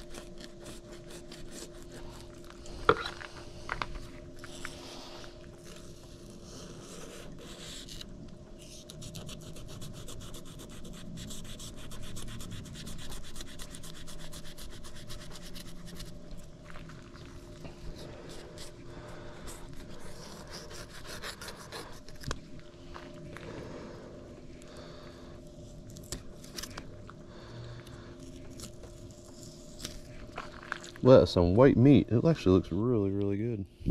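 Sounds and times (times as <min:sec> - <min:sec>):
knife scraping fish skin: 0:00.0 - 0:02.4, 0:19.4 - 0:22.4
steady hum: 0:00.0 - 0:33.9.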